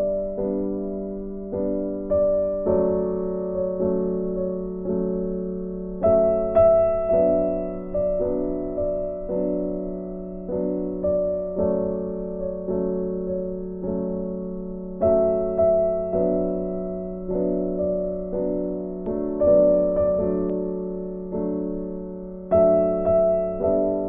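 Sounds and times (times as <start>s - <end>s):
piano music: 0.0s - 24.0s.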